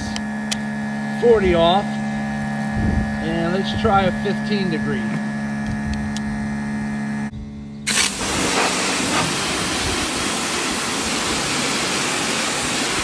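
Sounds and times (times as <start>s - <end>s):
pressure washer hum: 0.0s - 13.0s
high-pressure water spray: 7.9s - 13.0s.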